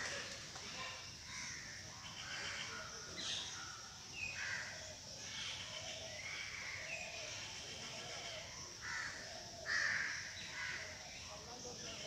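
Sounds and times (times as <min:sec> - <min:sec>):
outdoor background hiss: 0:00.0 - 0:12.0
crows cawing: 0:04.4 - 0:04.8, 0:08.8 - 0:11.0.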